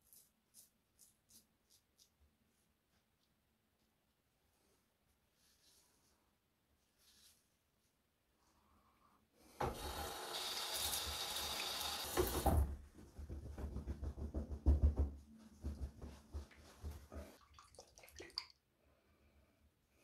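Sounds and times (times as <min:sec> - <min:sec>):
tap water running into sink: 0:09.6 - 0:12.7.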